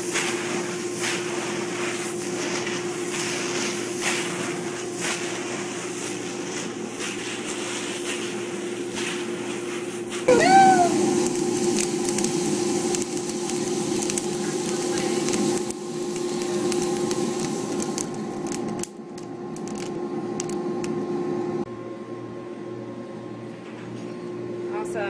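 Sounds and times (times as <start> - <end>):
motor and fan hum: 0.0 - 25.0
roasted beans rustling: 10.7 - 18.8.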